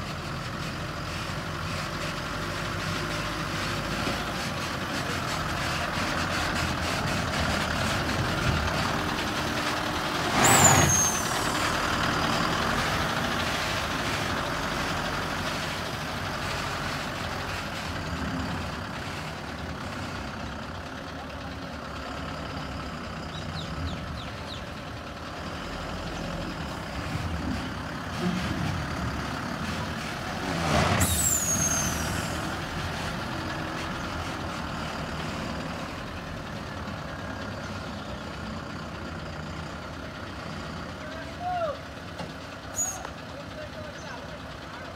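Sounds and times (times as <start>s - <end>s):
diesel truck engine running: 0.0s - 44.9s
air-brake hiss with squeal: 10.4s - 11.7s, 31.0s - 32.4s, 42.7s - 43.1s.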